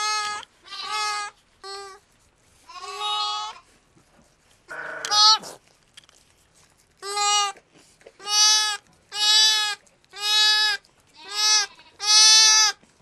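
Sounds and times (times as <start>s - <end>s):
lamb bleating: 0.0s - 2.0s, 2.7s - 3.7s, 4.7s - 5.6s, 7.0s - 7.6s, 8.2s - 12.8s.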